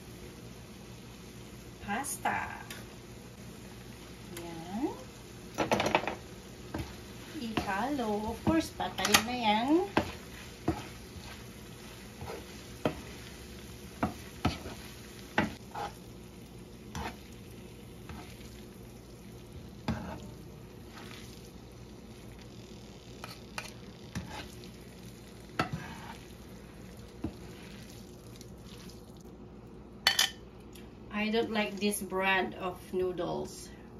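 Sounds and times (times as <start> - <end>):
food sizzling in pan: 0.0 - 33.4
utensils knocking and scraping pan: 5.6 - 11.4, 12.2 - 13.2, 14.0 - 16.0, 25.6 - 26.2.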